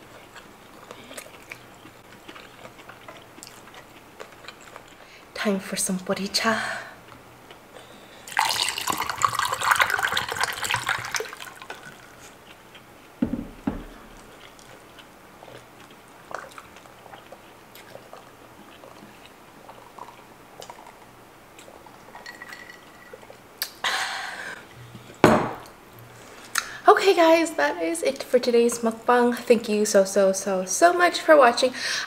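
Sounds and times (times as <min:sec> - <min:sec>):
liquid pouring over ice: 0:08.3 - 0:12.2, 0:22.1 - 0:23.2
thump: 0:13.2 - 0:14.0, 0:25.2 - 0:25.6.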